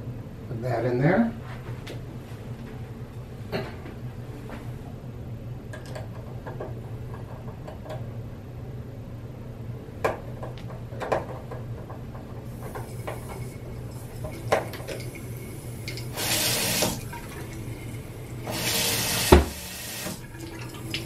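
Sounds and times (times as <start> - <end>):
water running into sink: 12.5 - 21.0.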